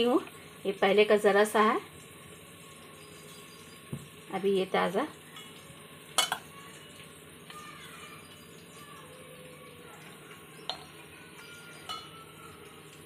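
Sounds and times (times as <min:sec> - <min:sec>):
sharp clink of kitchenware: 0:06.2 - 0:06.5, 0:10.7 - 0:12.2.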